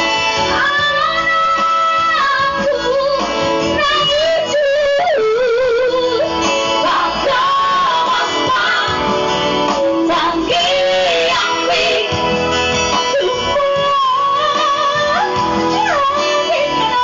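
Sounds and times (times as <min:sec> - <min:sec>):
amplified band accompaniment: 0:00.0 - 0:17.0
women singing: 0:00.5 - 0:12.4, 0:13.0 - 0:17.0.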